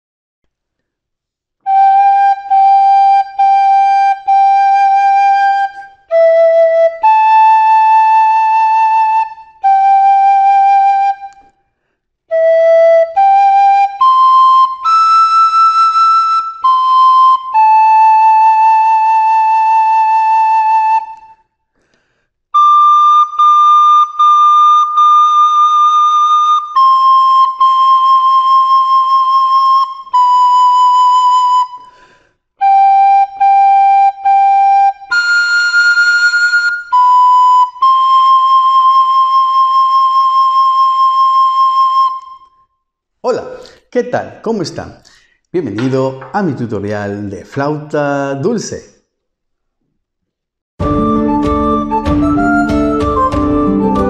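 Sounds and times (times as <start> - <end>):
recorder playing gentle melody: 1.7 - 11.5, 12.3 - 21.4, 22.6 - 42.7, 50.8 - 54.0
player breathing: 21.7 - 22.4, 31.8 - 32.4, 45.0 - 45.5.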